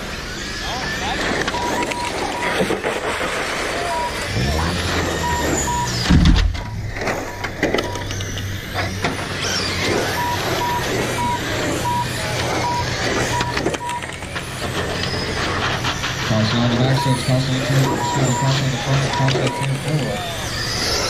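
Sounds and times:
rc race cars whirring past: 0.0 - 21.0
steady low hum: 0.0 - 21.0
short electronic beep: 1.4 - 2.6, 3.8 - 8.1, 10.0 - 14.1, 16.5 - 20.2.

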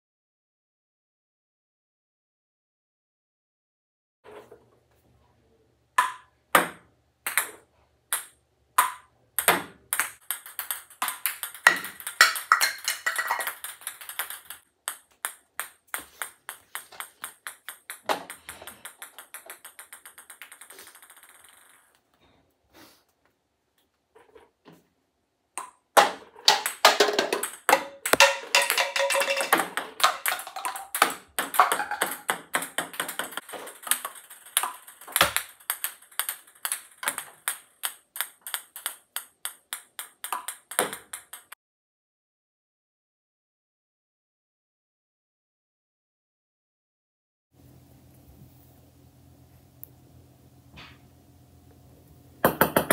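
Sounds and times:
ping-pong ball bouncing to rest: 6.0 - 21.8, 25.6 - 41.6, 52.4 - 52.9
ping-pong balls clicking: 6.0 - 22.1, 25.6 - 41.6, 52.4 - 52.9.

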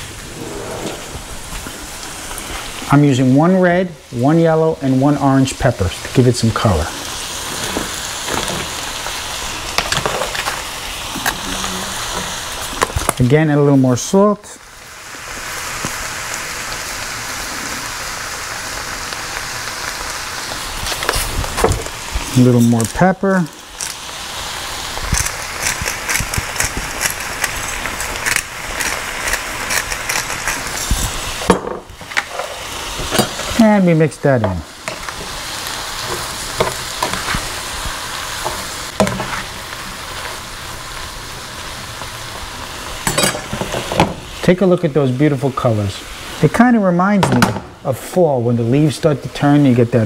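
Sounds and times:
vegetables sizzling in a pan: 0.0 - 50.0
oil crackling and clicking: 12.6 - 13.2, 19.1 - 32.4.

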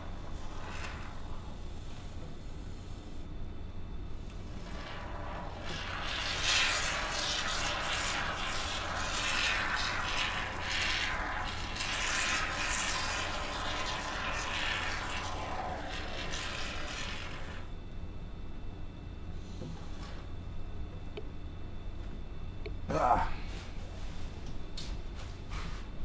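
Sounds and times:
expanding foam spray hissing: 4.6 - 17.6.

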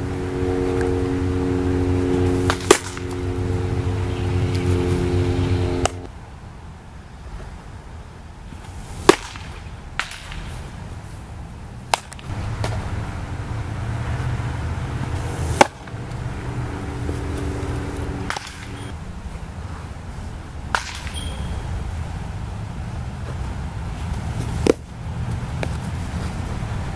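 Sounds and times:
baseball smacking into leather mitt: 2.4 - 3.2, 9.0 - 10.6, 11.9 - 12.9, 15.2 - 16.2, 18.2 - 18.8, 20.7 - 21.2, 24.1 - 24.8.

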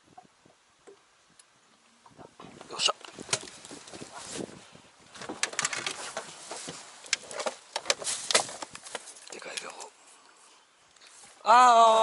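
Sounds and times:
rustling: 2.4 - 11.5.

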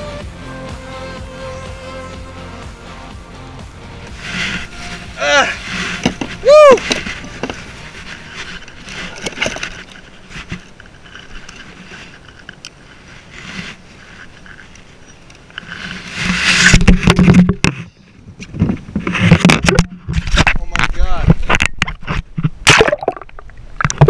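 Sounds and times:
cloth rubbing against microphone: 4.0 - 20.6.

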